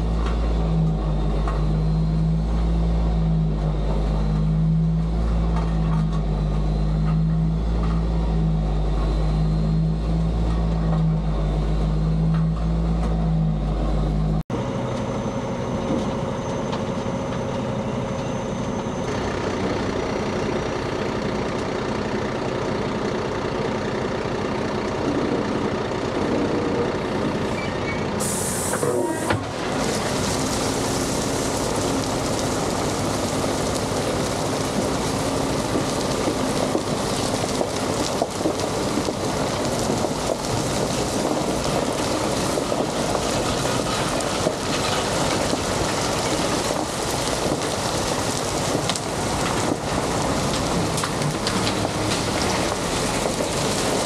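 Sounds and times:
even machine noise: 0.0s - 54.0s
heavy engine humming: 0.0s - 54.0s
rushing hiss: 28.2s - 35.4s.

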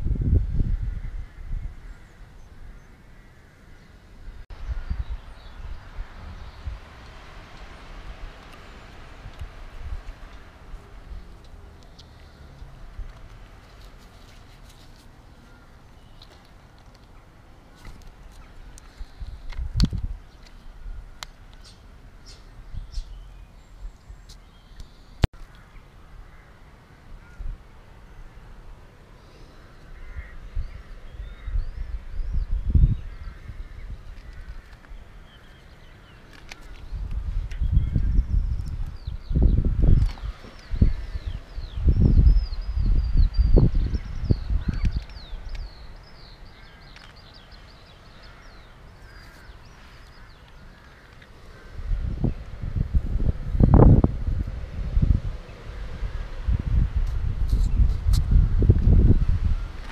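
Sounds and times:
low rumble on microphone: 0.0s - 2.9s, 36.9s - 46.8s, 51.5s - 59.9s
birds chirping: 0.8s - 54.0s.

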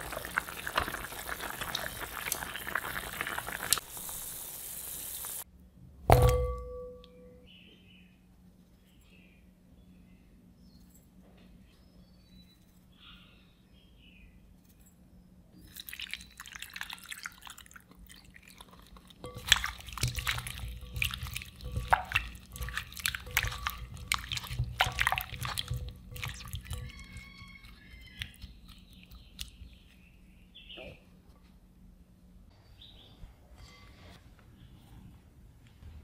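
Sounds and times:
chicken squelching in marinade: 15.7s - 30.0s.

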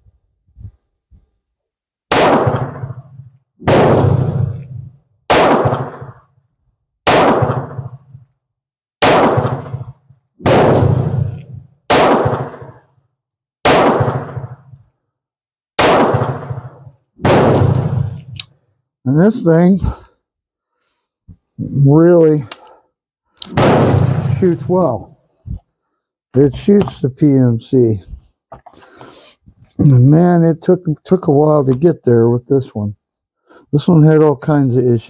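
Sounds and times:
pistol shots echoing: 2.1s - 6.3s, 7.0s - 8.1s, 9.0s - 12.8s, 13.6s - 14.7s, 15.8s - 18.5s, 23.5s - 25.0s.

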